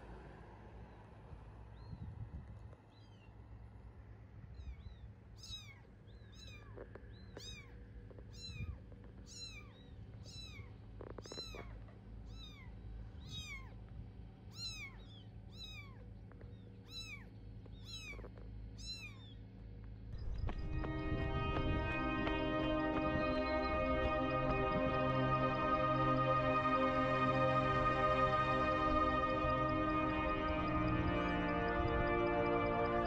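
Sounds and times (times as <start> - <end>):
kitten meowing: 4.6 - 6.8, 7.4 - 13.8, 14.5 - 19.4.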